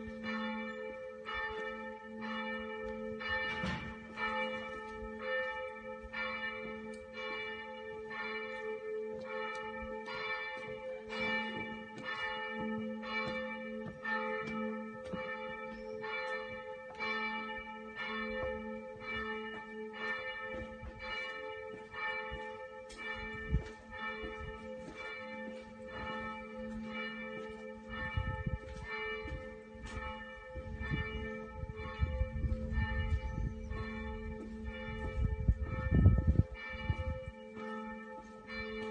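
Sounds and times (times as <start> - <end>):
church bells ringing: 0.0 - 38.9
low rumble on microphone: 34.9 - 37.2.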